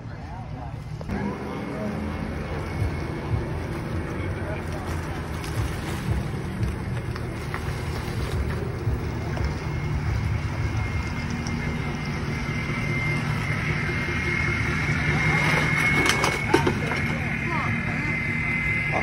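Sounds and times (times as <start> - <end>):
vehicle engine rumbling: 0.0 - 19.0
faint high whine: 7.4 - 19.0.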